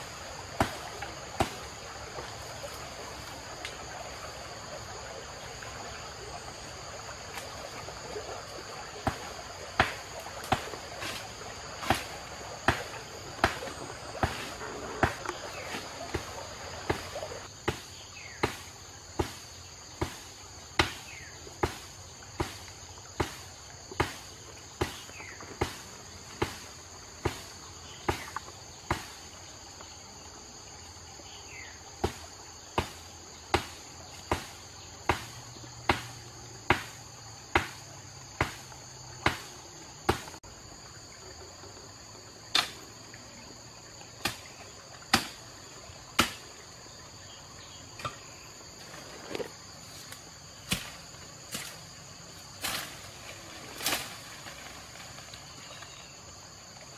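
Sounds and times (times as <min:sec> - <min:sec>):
crickets chirping: 0:00.0 - 0:56.9.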